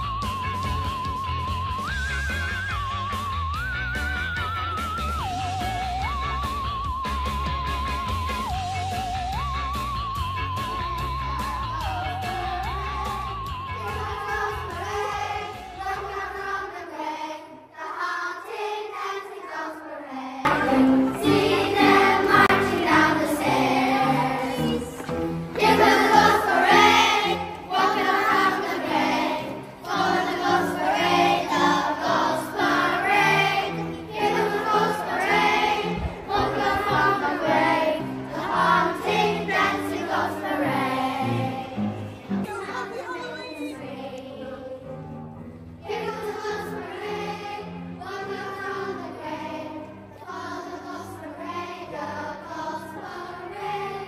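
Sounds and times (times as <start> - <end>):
children singing: 11.8 - 45.1, 45.8 - 54.0
instrumental music: 20.5 - 51.8.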